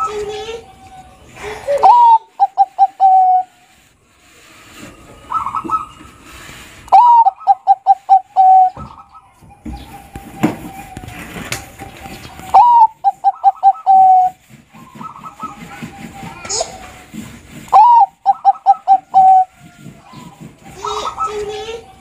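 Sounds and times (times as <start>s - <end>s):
dove cooing: 0.0s - 3.8s, 4.8s - 16.4s, 17.6s - 22.0s.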